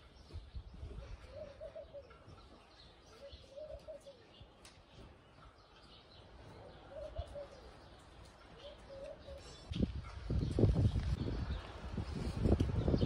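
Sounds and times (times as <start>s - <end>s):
small birds chirping: 0.0s - 13.0s
dove cooing: 1.0s - 2.4s, 3.2s - 4.4s, 6.6s - 8.0s, 8.6s - 9.6s.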